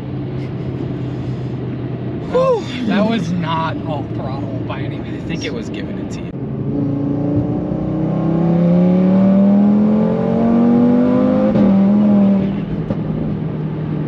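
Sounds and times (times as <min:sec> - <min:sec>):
car engine accelerating hard: 0:02.2 - 0:14.0.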